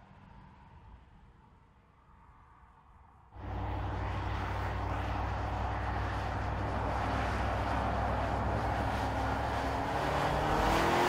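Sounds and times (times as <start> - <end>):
faint outdoor background: 0.0 - 11.0
car engine running: 3.4 - 11.0.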